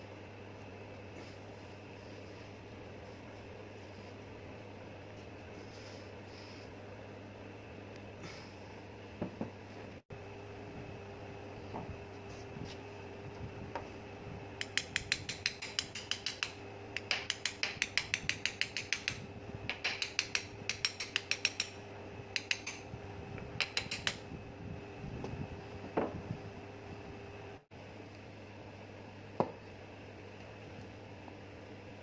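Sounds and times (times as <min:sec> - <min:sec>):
faint steady hum: 0:00.0 - 0:32.0
rapid metallic clicking: 0:14.6 - 0:21.8.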